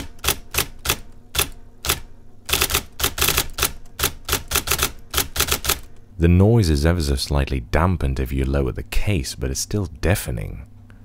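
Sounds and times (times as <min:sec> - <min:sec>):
electric typewriter clacking: 0:00.0 - 0:06.0.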